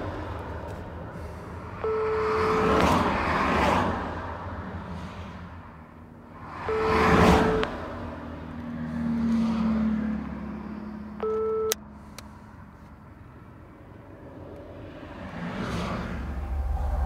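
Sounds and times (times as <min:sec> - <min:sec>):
car road noise in cabin: 0:00.0 - 0:17.0
phone electronic beep: 0:01.8 - 0:02.8, 0:06.7 - 0:07.7, 0:11.2 - 0:11.8.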